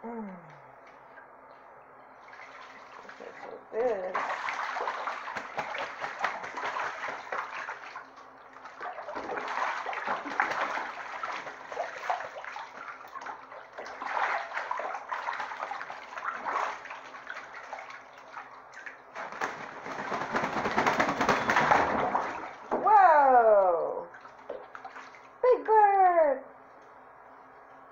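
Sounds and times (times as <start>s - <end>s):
water splashing in bathtub: 0.8s - 25.4s
goose wings beating water: 2.2s - 22.9s, 24.1s - 25.3s.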